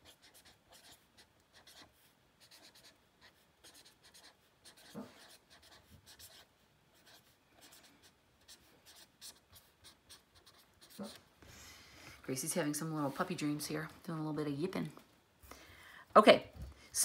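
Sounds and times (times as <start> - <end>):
pen scratching on paper: 0.0 - 11.3.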